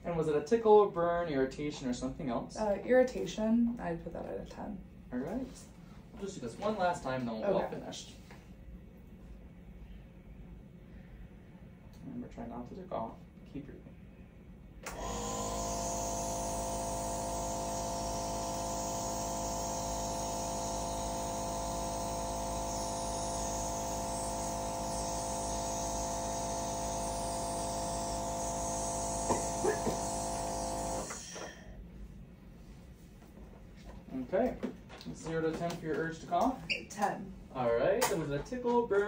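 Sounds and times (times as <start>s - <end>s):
nebulizer compressor hum and hiss: 14.8s - 32.1s.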